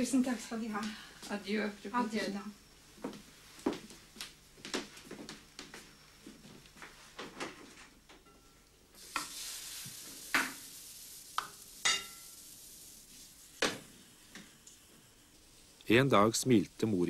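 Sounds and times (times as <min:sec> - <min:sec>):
batter sizzling on waffle iron: 0:07.5 - 0:17.0.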